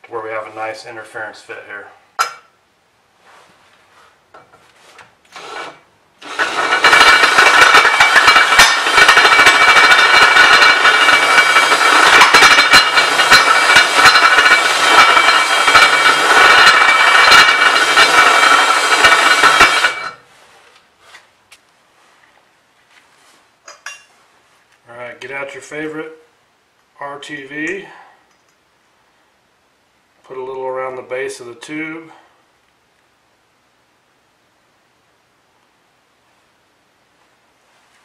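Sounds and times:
cordless drill whining: 5.3s - 20.2s.

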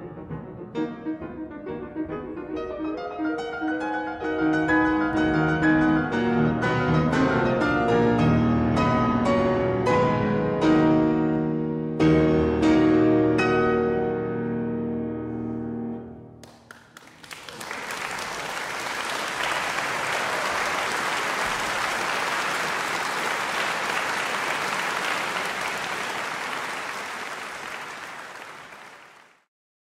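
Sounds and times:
audience applause: 16.4s - 29.5s.

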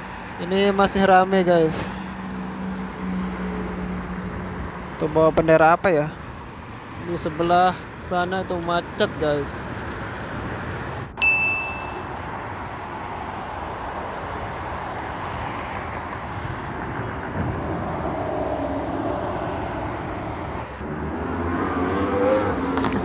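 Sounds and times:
city traffic noise: 0.0s - 23.0s
bright ding chime: 11.2s - 12.1s.

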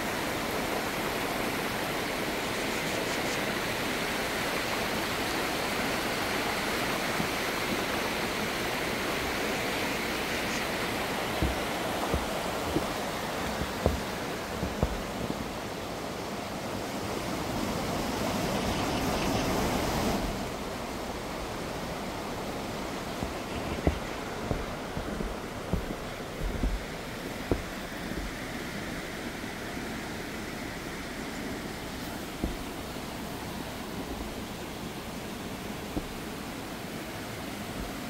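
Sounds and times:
low thumps on microphone: 9.9s - 15.6s, 22.9s - 28.5s, 32.2s - 33.0s, 35.9s - 36.4s.

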